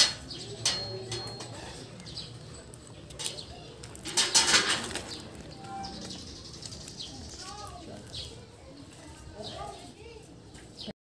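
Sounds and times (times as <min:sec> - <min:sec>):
birds: 0:00.0 - 0:10.9
rustling: 0:02.5 - 0:09.9.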